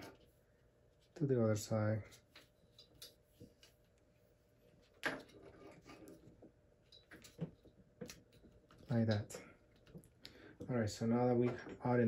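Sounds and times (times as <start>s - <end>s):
soft handling clicks and rustles: 2.0s - 12.0s.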